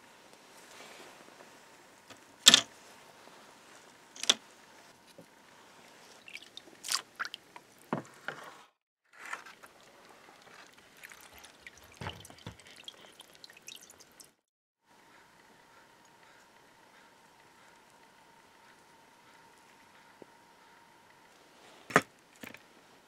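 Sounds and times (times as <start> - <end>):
liquid dripping: 6.1 - 7.8, 9.6 - 14.4.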